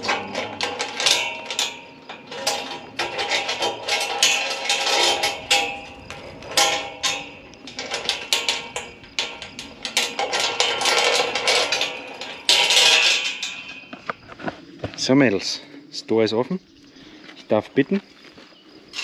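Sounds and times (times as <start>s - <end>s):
steel ringing: 0.0s - 14.1s
metal gate latch clanking: 0.0s - 14.2s.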